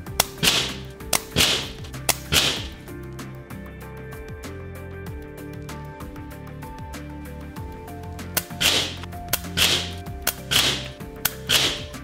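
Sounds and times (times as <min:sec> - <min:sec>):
light background music: 0:00.0 - 0:12.0
air rifle shots: 0:00.2 - 0:02.8, 0:08.4 - 0:12.0.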